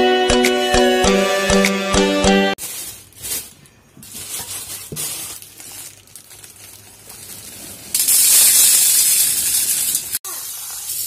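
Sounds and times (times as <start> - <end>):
plastic bag crinkling: 2.6 - 11.0
dried grains pouring into metal bowl: 7.9 - 11.0.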